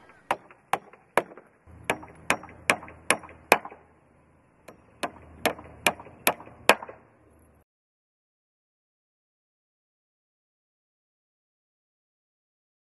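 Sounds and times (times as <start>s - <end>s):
hammer striking nails: 0.0s - 3.9s, 4.6s - 7.0s.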